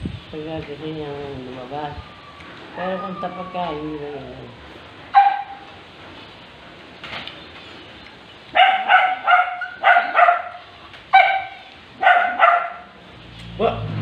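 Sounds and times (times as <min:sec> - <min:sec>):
small dog yapping: 0:05.2 - 0:05.7, 0:08.6 - 0:12.9.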